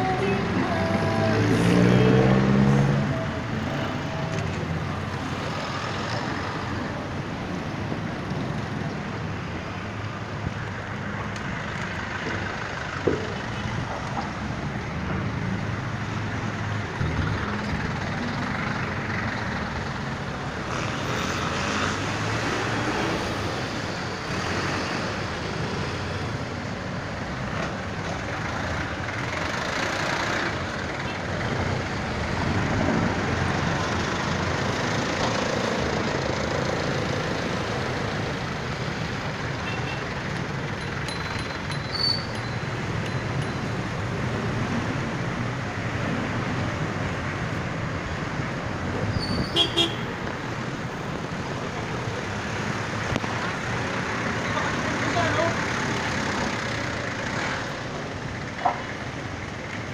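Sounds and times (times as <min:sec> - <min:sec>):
busy street traffic: 0:00.0 - 0:59.9
engine revving: 0:00.9 - 0:03.2.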